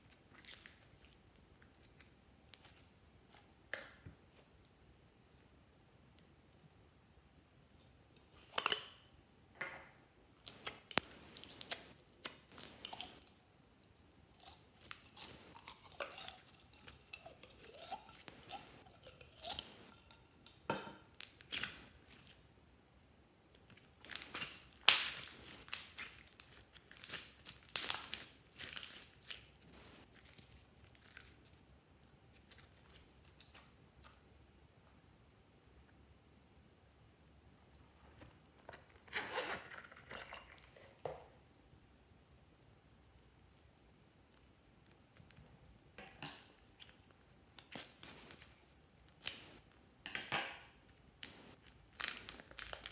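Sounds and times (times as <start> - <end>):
slime crackling and squelching: 0.0 - 4.7, 10.4 - 22.5, 23.6 - 34.2, 50.9 - 52.9.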